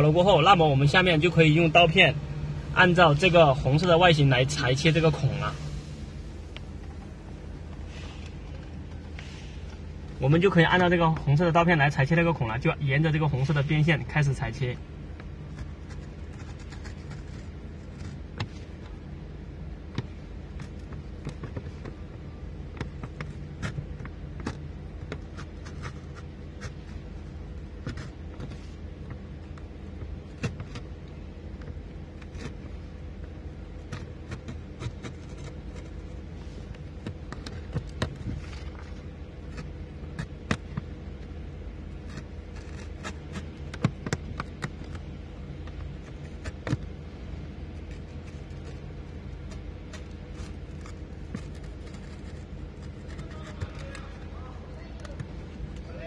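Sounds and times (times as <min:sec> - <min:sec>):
steady low hum: 0:00.0 - 0:56.0
utility knife cutting: 0:47.8 - 0:55.2.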